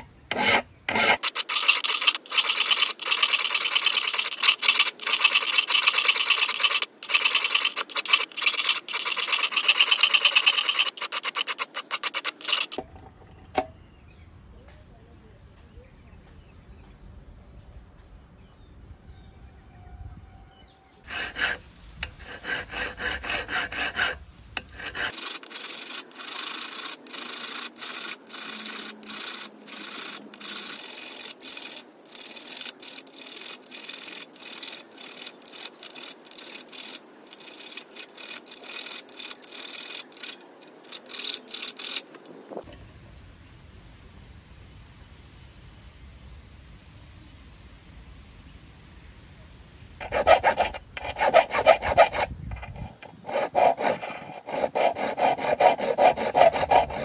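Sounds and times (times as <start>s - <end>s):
hand file rasping strokes: 0.0s - 12.8s, 21.1s - 42.3s, 50.0s - 57.0s.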